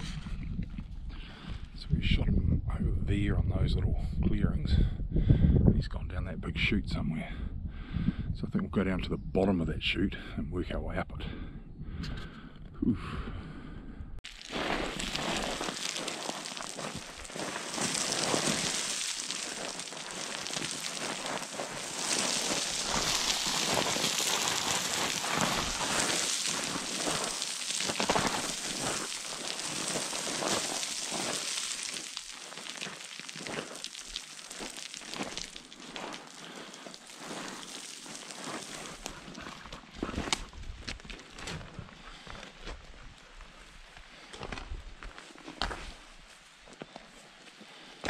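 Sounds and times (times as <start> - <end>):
small stones rattling: 14.2 - 41.4
boots crunching on scree: 14.2 - 47.5.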